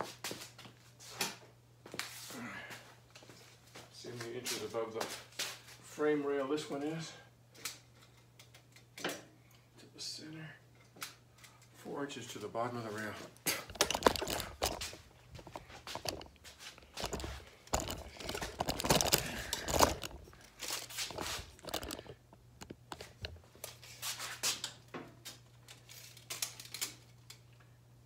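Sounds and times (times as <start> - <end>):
low steady hum: 6.2 - 24.1
tools and parts clicking: 7.6 - 9.6, 13.5 - 23.8, 24.6 - 27.6.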